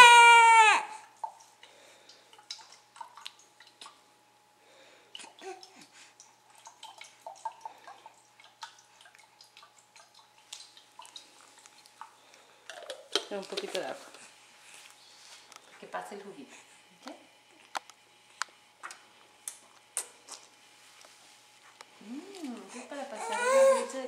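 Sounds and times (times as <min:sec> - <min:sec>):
baby mouth wet clicks and smacks: 0:01.2 - 0:04.0, 0:12.7 - 0:13.8, 0:17.6 - 0:20.5.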